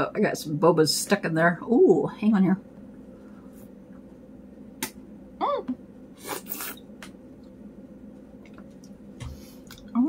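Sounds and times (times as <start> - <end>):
sucking through straw: 6.2 - 6.8.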